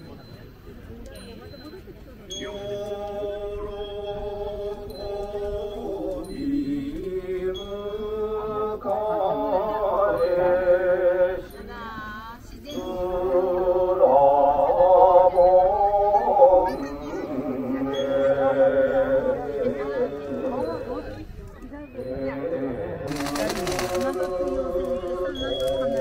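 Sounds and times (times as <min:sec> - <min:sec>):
person chanting long notes: 0:12.7 - 0:21.3, 0:22.0 - 0:26.0.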